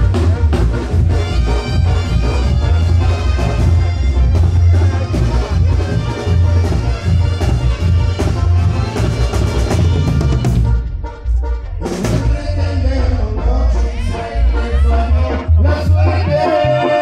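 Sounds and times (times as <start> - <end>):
pounding bass drum and snare: 0.0 - 10.9, 11.8 - 12.6
brass band playing: 0.0 - 17.0.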